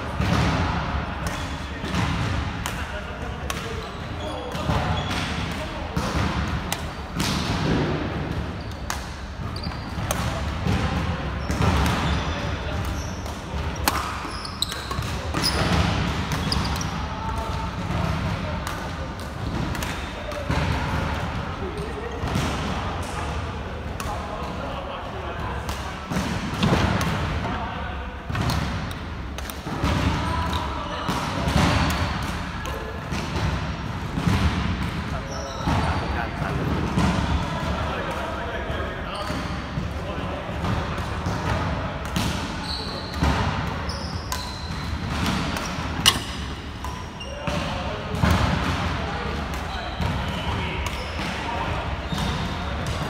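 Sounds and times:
shoe squeaks on wooden court: 0:03.6 - 0:05.6, 0:08.5 - 0:10.2, 0:11.4 - 0:17.0, 0:35.2 - 0:36.2, 0:42.5 - 0:47.9, 0:49.6 - 0:52.6
racket striking shuttlecock: 0:44.3 - 0:48.8.

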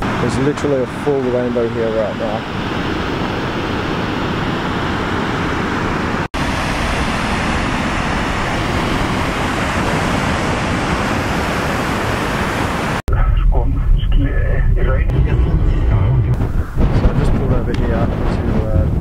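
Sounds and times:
waterfall rushing water: 0:06.4 - 0:13.0.

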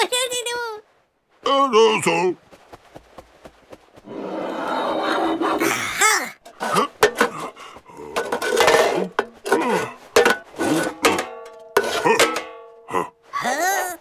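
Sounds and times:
metal pots clinking: 0:06.4 - 0:12.9
pot ringing: 0:08.2 - 0:12.9
squeaky gibberish creature voices: 0:12.9 - 0:14.0.

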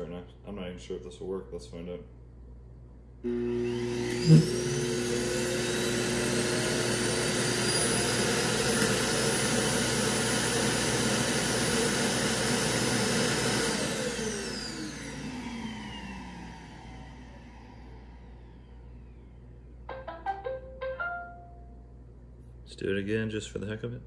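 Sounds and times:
suction motor rushing and whining: 0:03.3 - 0:19.0.

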